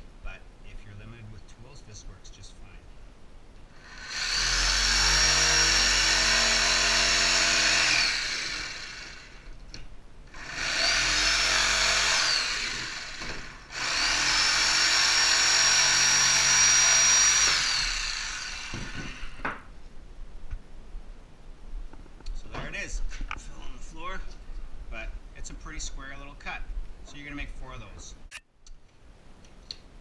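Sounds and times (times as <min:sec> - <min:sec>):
jigsaw cutting wood: 0:03.8 - 0:09.5, 0:10.3 - 0:19.5
knocks: 0:18.7 - 0:19.7.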